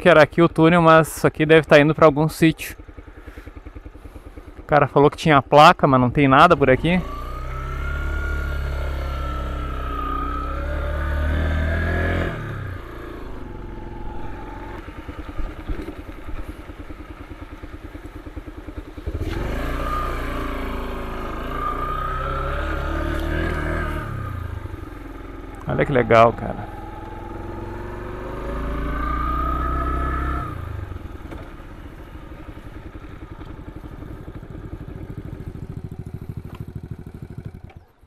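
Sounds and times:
motorcycle engine running: 0.0 - 38.0.

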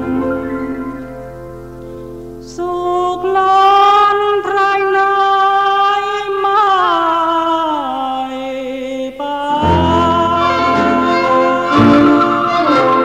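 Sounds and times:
man singing long notes: 2.4 - 13.0.

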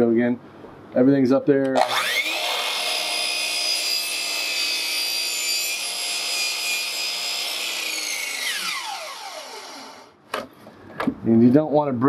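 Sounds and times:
chop saw cutting plywood: 1.8 - 10.1
saw blade winding down: 1.8 - 10.2.

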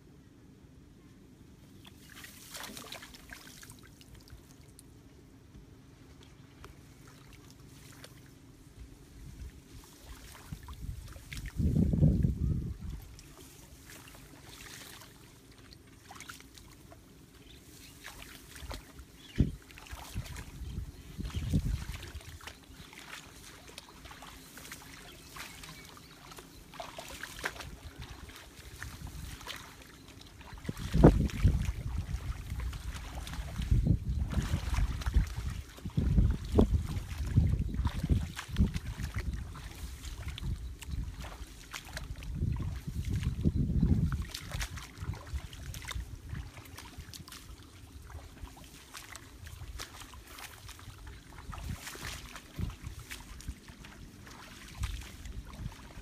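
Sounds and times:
wet grass rustling: 1.7 - 4.9, 6.0 - 56.0
marsh water splashing: 1.8 - 4.7, 9.2 - 56.0.

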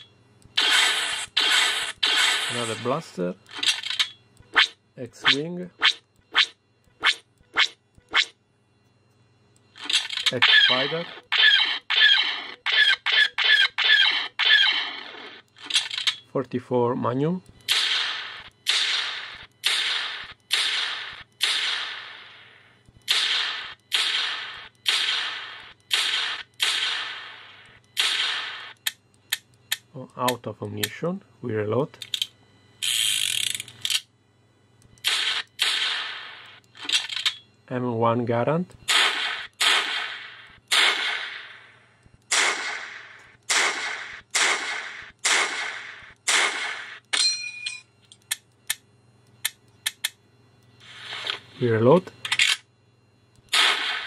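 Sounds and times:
revolver gunshots: 0.6 - 3.0, 9.8 - 16.0, 17.7 - 28.8, 35.0 - 37.0, 38.9 - 47.0, 53.5 - 54.0
rifle shots through small speaker: 0.6 - 3.8, 9.8 - 15.4, 53.5 - 54.0.

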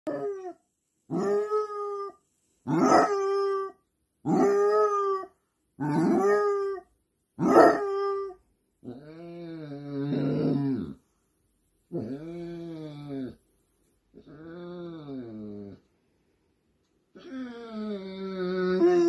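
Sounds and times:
dog howling: 2.7 - 6.8, 7.4 - 8.4, 17.5 - 19.0.

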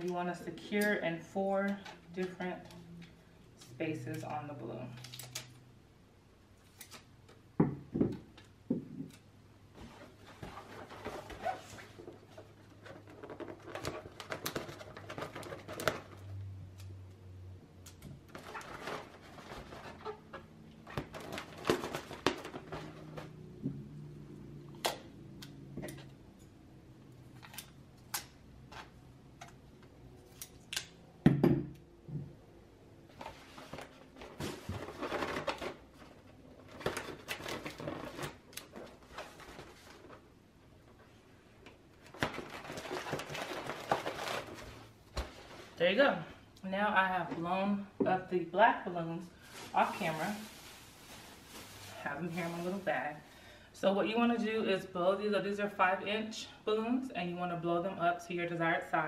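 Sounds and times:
foil balloon crinkling: 18.3 - 23.4, 33.4 - 40.3, 42.0 - 45.8, 49.4 - 53.1.

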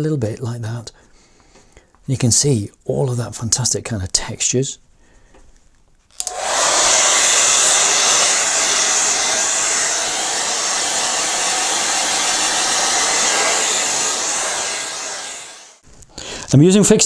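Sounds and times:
hair dryer running: 6.2 - 15.8.

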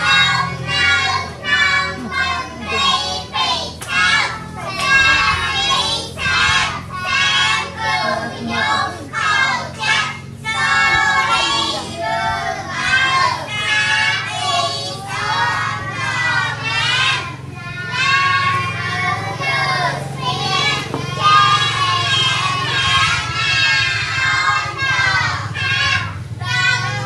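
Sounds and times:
children singing: 0.0 - 27.0
steady low hum: 0.0 - 27.0.

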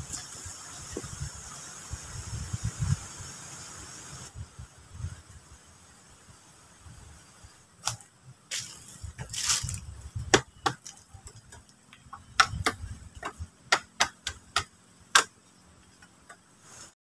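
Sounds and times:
blade chopping wood: 9.2 - 15.4.

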